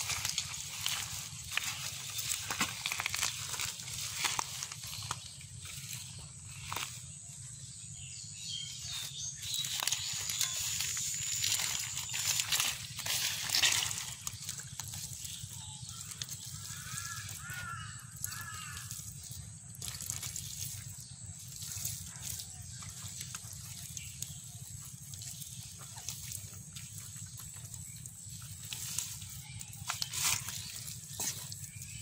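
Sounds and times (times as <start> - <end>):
hands squelching wet mud: 0.0 - 7.8, 8.4 - 32.0.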